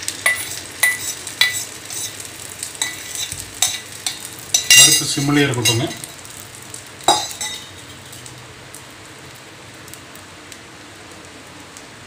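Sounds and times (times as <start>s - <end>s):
egg sizzling in hot oil: 0.0s - 12.0s
sharp metal clink: 2.8s - 6.1s, 7.1s - 7.9s.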